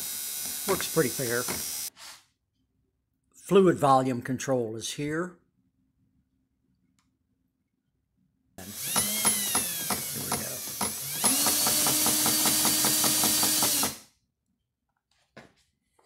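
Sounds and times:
cordless drill whining: 0.0s - 1.9s, 8.6s - 14.1s.

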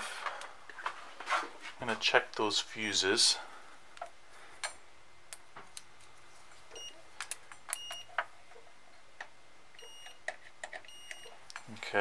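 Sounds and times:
multimeter beeps: 6.7s - 7.0s, 7.7s - 8.1s, 9.8s - 11.4s
test probes clicking: 6.7s - 8.1s.

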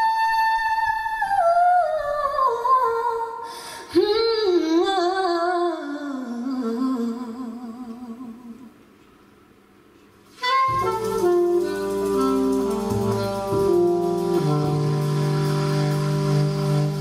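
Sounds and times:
saxophone and trombone playing jazz: 10.3s - 17.0s.

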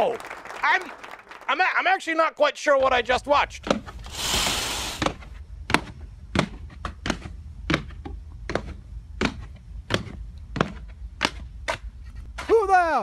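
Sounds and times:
brief hiss: 4.0s - 5.2s.

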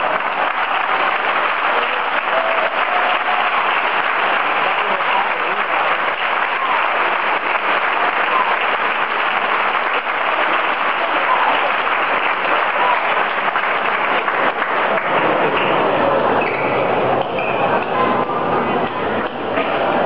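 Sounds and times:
crowd applauding: 0.0s - 20.0s.

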